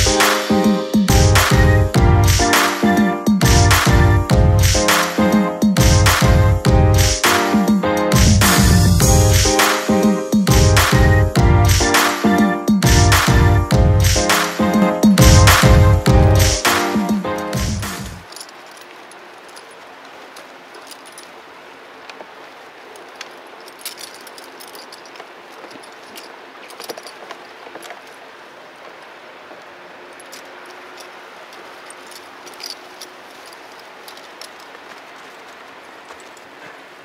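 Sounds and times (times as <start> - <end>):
metallic clinks of halter clip: 18.2 - 21.4, 23.0 - 28.2, 30.1 - 36.6.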